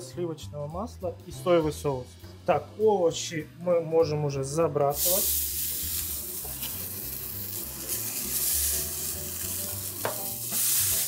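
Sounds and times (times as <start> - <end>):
vegetables sizzling in frying pan: 5.0 - 11.0.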